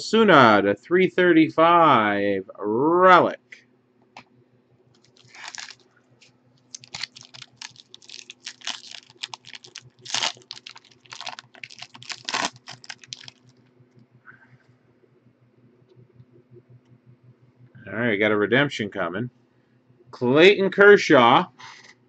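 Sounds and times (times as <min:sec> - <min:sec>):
foil wrapper crinkling: 0:05.0 - 0:05.9, 0:06.7 - 0:13.6.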